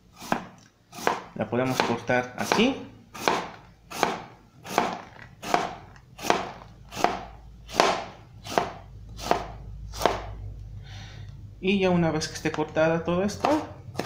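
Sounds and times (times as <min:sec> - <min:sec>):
knife slicing onion on board: 0:00.1 - 0:10.4, 0:13.3 - 0:14.0.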